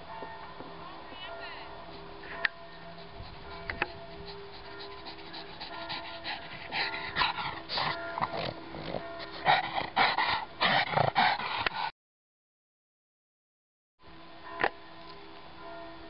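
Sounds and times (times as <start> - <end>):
dog panting: 1.8 - 11.9.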